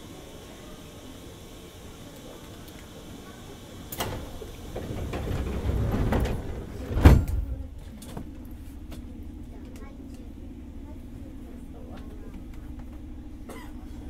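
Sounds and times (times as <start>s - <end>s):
sliding doors rumble: 3.0s - 9.4s
train door click: 3.8s - 9.0s
doors shutting thud: 3.9s - 8.3s.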